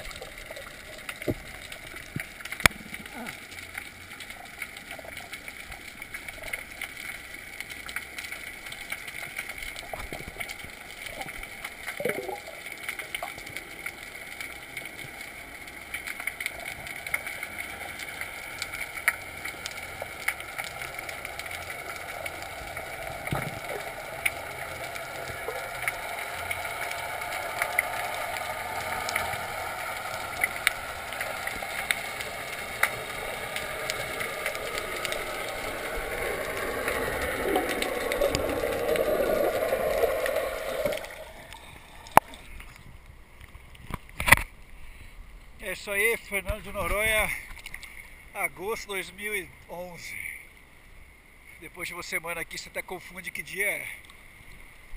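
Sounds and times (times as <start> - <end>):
bubbles streaming: 0.0 - 42.7
sharp underwater clicks: 0.0 - 44.8
underwater watery hiss: 17.7 - 42.6.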